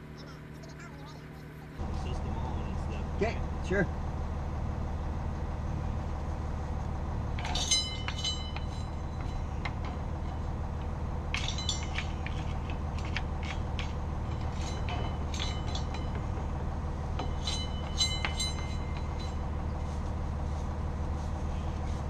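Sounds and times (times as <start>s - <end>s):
low hum: 0.0s - 22.0s
brush scraping metal: 6.2s - 22.0s.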